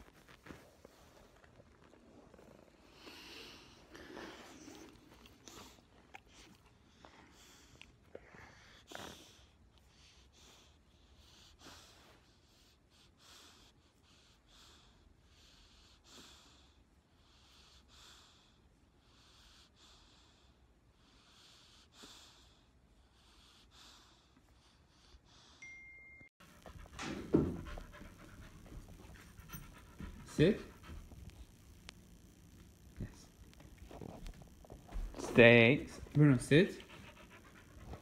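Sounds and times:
soft breathing: 0:00.0 - 0:10.8.

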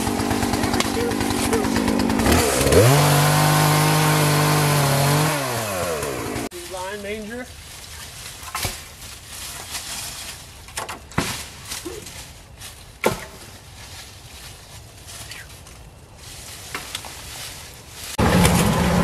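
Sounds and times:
branches knocking and cracking: 0:00.0 - 0:19.0
branches dragged over leaves: 0:06.4 - 0:19.0.

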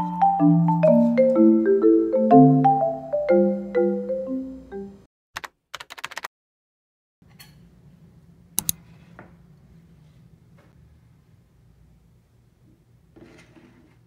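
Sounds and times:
keyboard typing clicks: 0:05.4 - 0:06.3.

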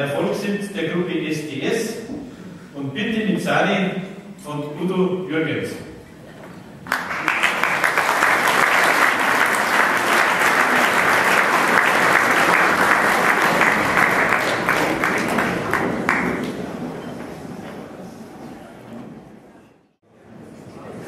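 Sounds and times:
audience applauding: 0:06.8 - 0:16.9.

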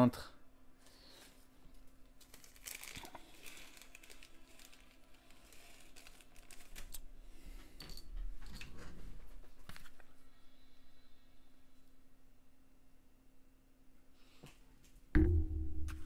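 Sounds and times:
packets crinkling and rustling: 0:01.2 - 0:07.1.

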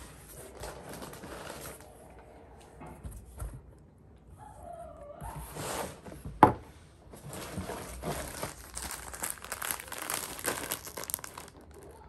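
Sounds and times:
plastic packets crinkling: 0:07.2 - 0:12.0.

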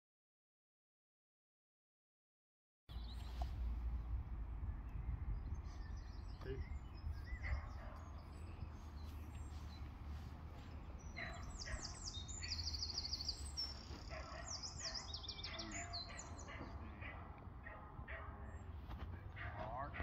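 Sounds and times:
low rumble: 0:02.9 - 0:11.1
songbird trills: 0:02.9 - 0:20.0.

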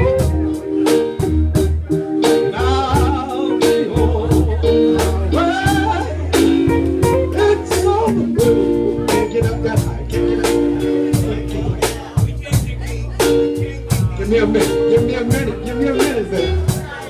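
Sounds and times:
electric guitar: 0:00.0 - 0:12.1
keyboard: 0:00.0 - 0:17.0
steady drum beat: 0:00.0 - 0:17.0
sustained bass notes: 0:00.0 - 0:17.0
man singing into a microphone: 0:02.2 - 0:17.0.

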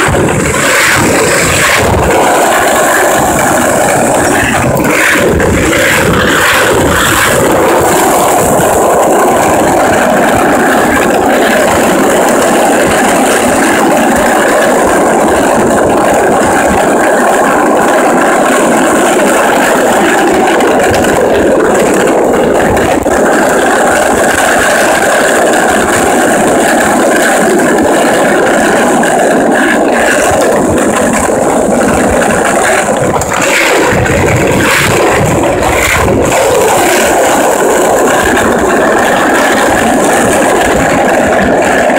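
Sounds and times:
wheels rolling on rough asphalt: 0:00.0 - 0:41.9
sharp clicks and knocks: 0:18.1 - 0:41.9.

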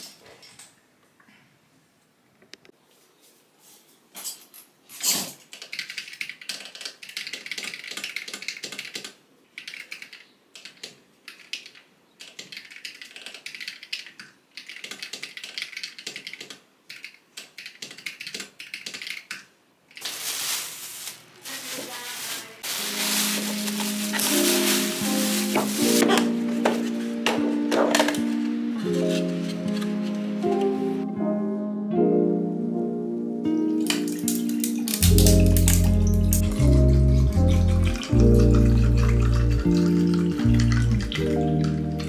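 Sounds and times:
plastic bag rustling: 0:20.0 - 0:28.2.

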